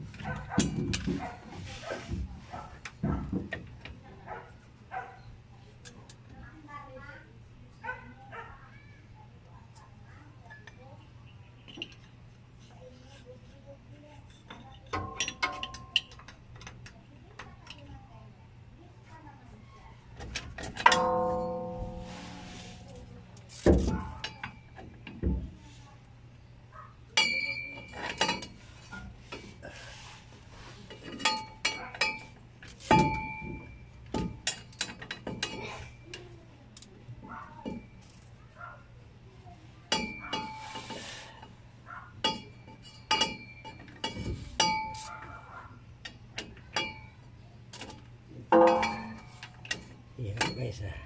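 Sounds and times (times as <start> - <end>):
metal tools clinking on metal: 11.6 - 12.2, 14.2 - 17.9, 20.3 - 25.3, 27.2 - 29.8, 30.8 - 38.3, 39.9 - 41.1, 42.2 - 51.0.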